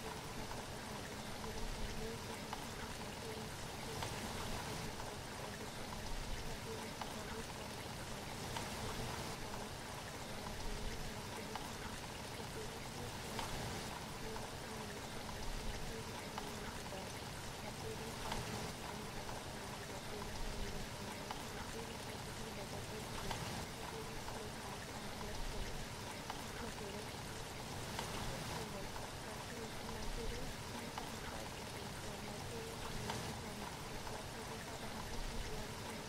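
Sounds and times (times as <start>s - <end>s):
rushing water: 0.0s - 36.0s.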